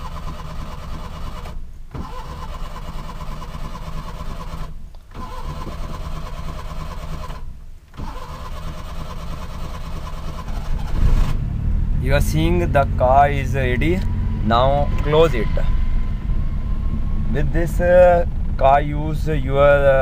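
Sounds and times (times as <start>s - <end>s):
starter motor cranking engine: 0.0s - 11.7s.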